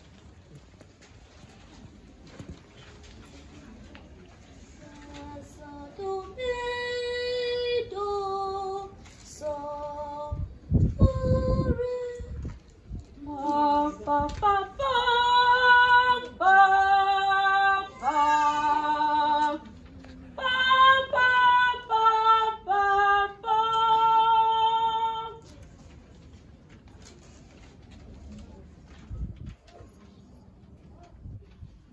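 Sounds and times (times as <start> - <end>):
choir singing unaccompanied: 13.3 - 19.6, 20.4 - 25.3.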